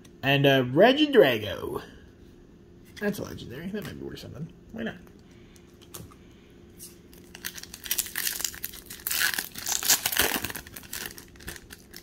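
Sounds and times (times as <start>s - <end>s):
foil wrapper crinkling and tearing: 7.1s - 12.0s.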